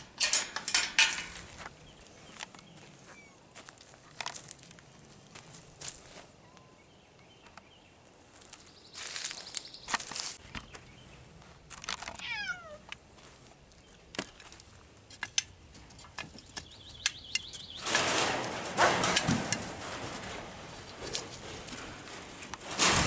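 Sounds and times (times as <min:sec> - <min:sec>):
steps on dry ground: 0:01.2 - 0:06.4, 0:08.3 - 0:14.8.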